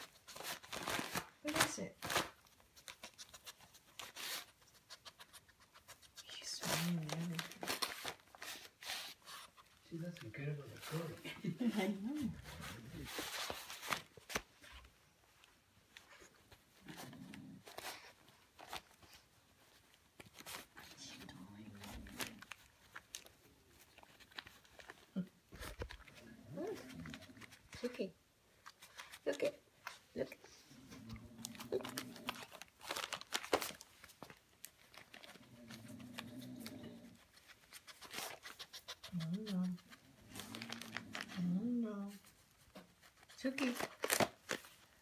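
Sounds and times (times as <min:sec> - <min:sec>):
wrapping paper crinkling: 0:00.0 - 0:14.9, 0:17.7 - 0:27.7, 0:31.3 - 0:36.6, 0:39.7 - 0:45.0.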